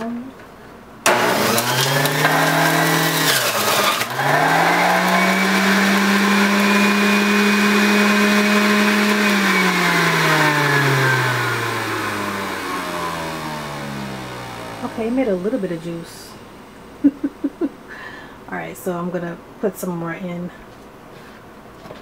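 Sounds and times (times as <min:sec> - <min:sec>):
juice extractor motor whining: 0:01.0 - 0:15.8.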